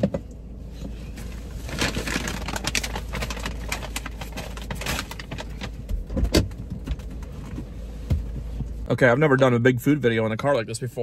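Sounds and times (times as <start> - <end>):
rustling and shuffling on car seats: 0.6 - 8.9.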